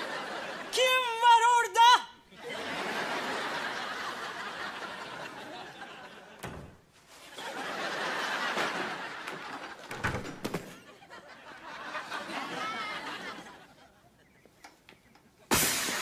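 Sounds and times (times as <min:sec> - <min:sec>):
studio audience laughing: 0:00.0 - 0:00.7, 0:02.3 - 0:10.0, 0:10.8 - 0:14.4.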